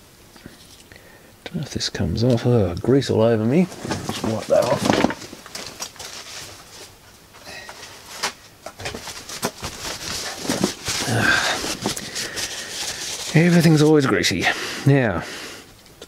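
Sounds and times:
paper towel crumpling: 3.6 - 7.0, 7.8 - 14.2.

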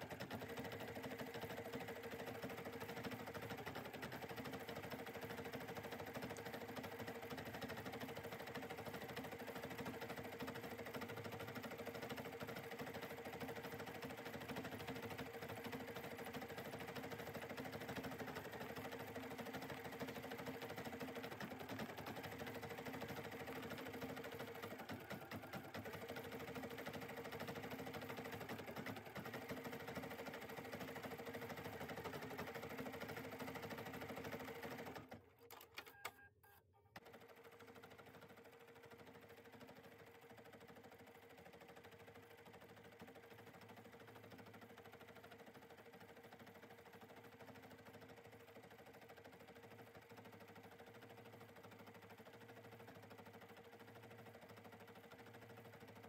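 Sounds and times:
embroidery machine whirring: 0.0 - 35.6.

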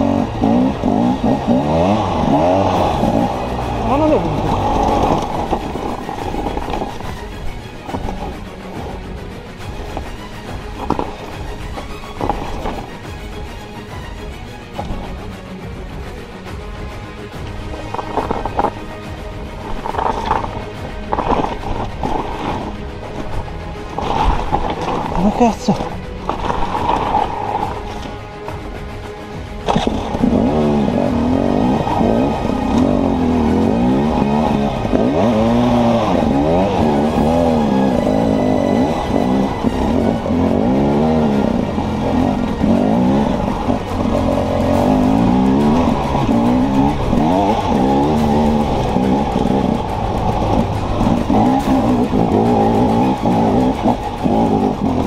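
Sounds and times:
dirt bike engine revving: 0.0 - 8.4, 29.6 - 55.0.

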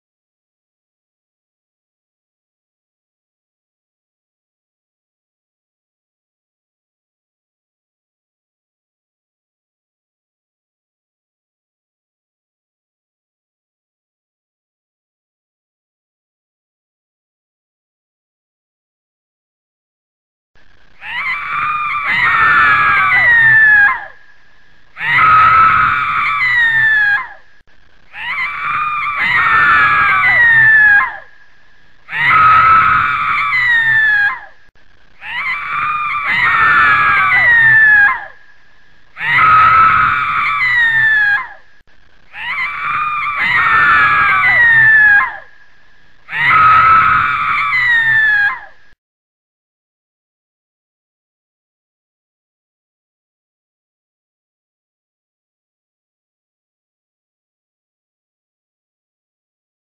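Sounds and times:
falling yells: 21.0 - 24.2, 25.0 - 27.4, 28.1 - 31.4, 32.1 - 34.6, 35.2 - 38.4, 39.2 - 41.6, 42.3 - 45.5, 46.3 - 48.8
person screaming: 28.1 - 31.3, 35.2 - 38.4, 42.3 - 45.4.

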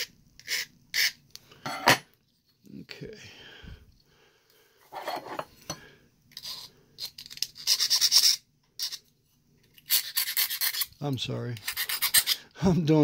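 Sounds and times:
file rasping on plastic: 9.9 - 10.9, 11.6 - 12.4.

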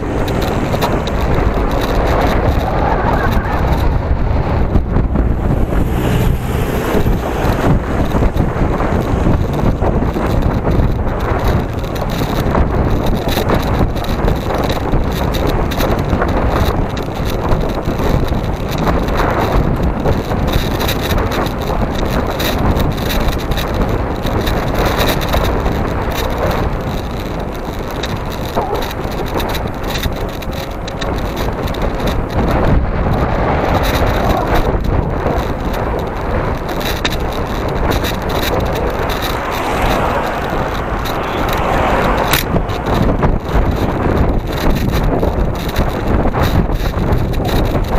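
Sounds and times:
road rumble: 0.0 - 47.9
wind rush on microphone: 0.0 - 47.9
car passing close by: 38.6 - 43.3.

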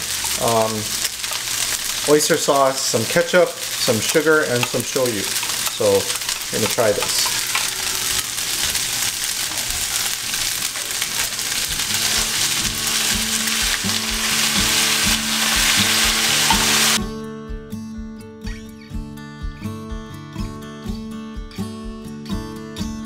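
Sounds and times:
noodles sizzling in frying pan: 0.0 - 17.0
acoustic guitar music: 11.2 - 23.0.

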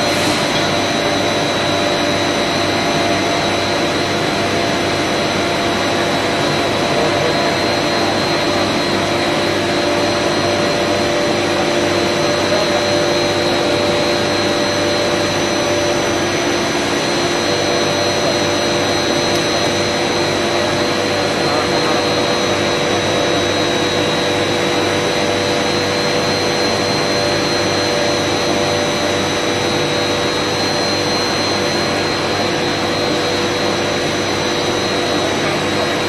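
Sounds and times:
high-pitched whine: 0.0 - 36.0
refrigeration machinery running: 0.0 - 36.0.

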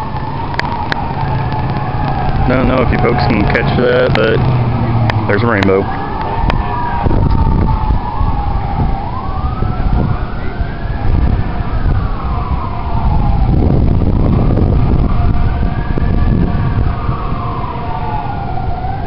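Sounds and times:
siren wailing: 0.0 - 19.0
wind buffeting microphone: 0.0 - 19.0.

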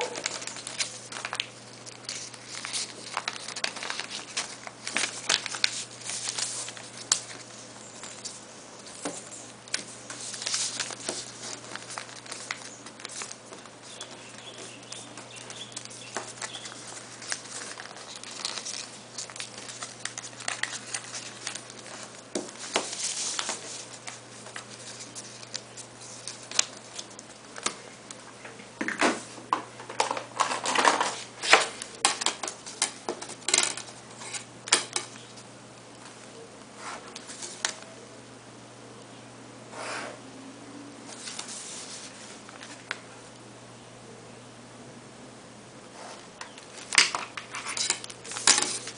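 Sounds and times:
paper rustling and creasing: 0.0 - 28.4, 29.1 - 37.9, 41.1 - 43.0, 46.1 - 48.9
steady low hum: 0.0 - 48.9.

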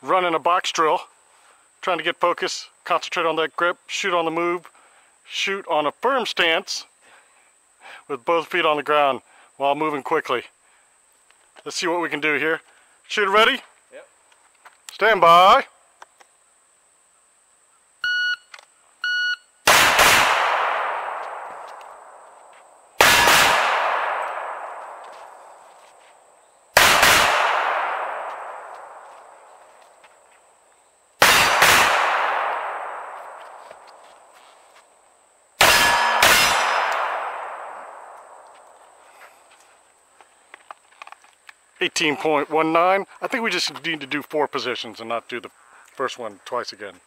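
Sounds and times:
shot timer beeps: 18.0 - 19.5
pistol shots with echo: 19.7 - 22.2, 23.0 - 25.1, 26.8 - 29.0, 31.2 - 33.6, 35.6 - 38.5.

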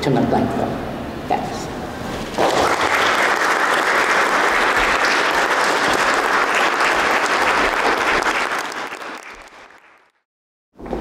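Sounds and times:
audience applauding: 2.3 - 10.2.

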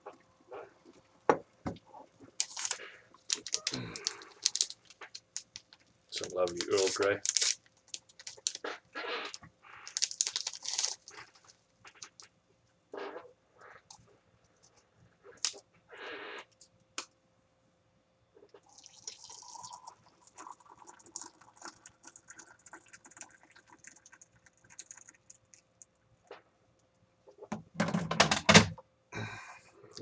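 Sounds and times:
water poured into mug: 18.6 - 25.4.

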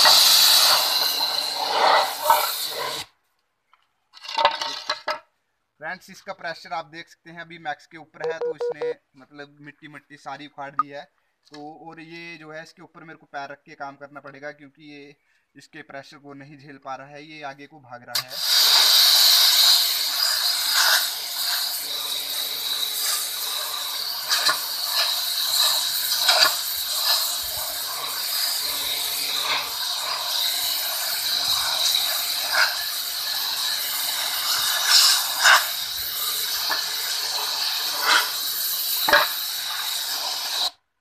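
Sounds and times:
pressure washer spray hissing: 0.0 - 3.0, 18.2 - 40.8.

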